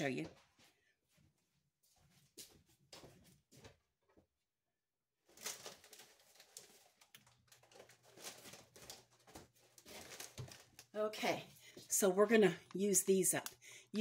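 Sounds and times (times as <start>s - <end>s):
scattered clicks in a kitchen: 6.4s - 9.4s, 12.6s - 13.6s.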